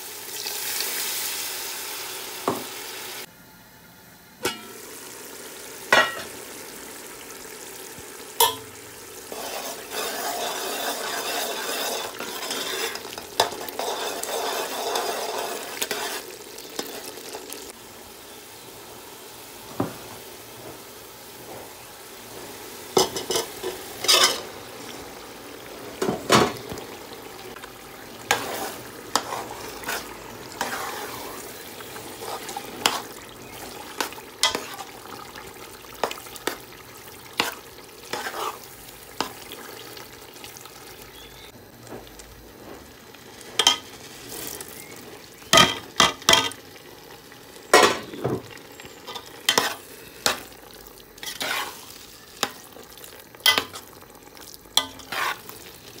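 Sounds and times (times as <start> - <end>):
meat sizzling in oil: 0.0 - 3.3, 4.4 - 56.0
metal spoon scraping a pot: 9.3 - 17.0, 28.3 - 34.9, 51.2 - 51.8, 54.8 - 55.5.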